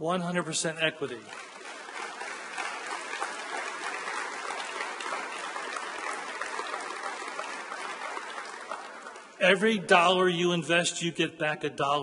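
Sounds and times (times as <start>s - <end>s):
audience applauding: 0.9s - 10.2s.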